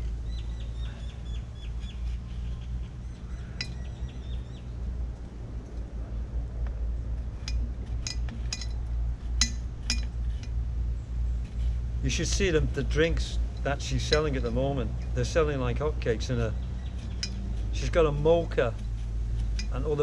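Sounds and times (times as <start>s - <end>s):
bird chirping: 0.0s - 4.8s, 16.3s - 18.4s
metal clinks on coconut: 3.5s - 3.9s, 7.4s - 10.6s, 13.2s - 15.4s, 16.2s - 20.0s.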